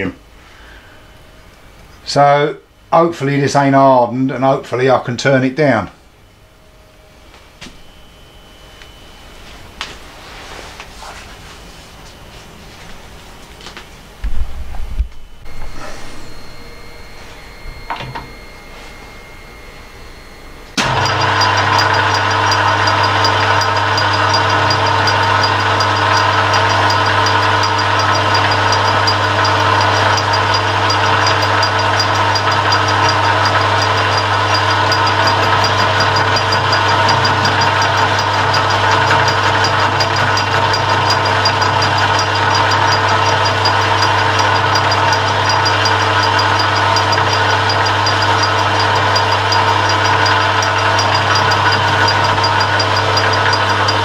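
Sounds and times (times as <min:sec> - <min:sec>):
metal lathe cutting: 0:15.5 - 0:54.0.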